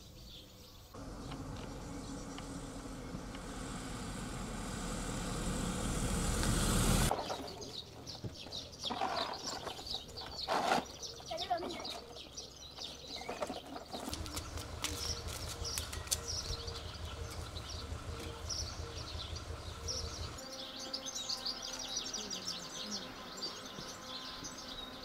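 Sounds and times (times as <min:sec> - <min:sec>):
small birds chirping: 0:00.0 - 0:25.0
low pulsing rumble: 0:01.0 - 0:07.1, 0:14.1 - 0:20.4
sharp clicks: 0:14.1 - 0:18.4.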